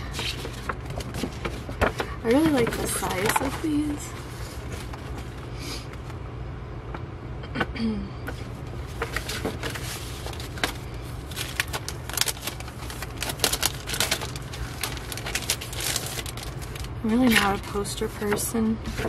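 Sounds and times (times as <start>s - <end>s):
paper posters rustling: 0.0s - 6.0s, 8.4s - 19.0s
steady low hum: 0.0s - 19.0s
plastic sleeve crackling: 8.8s - 19.0s.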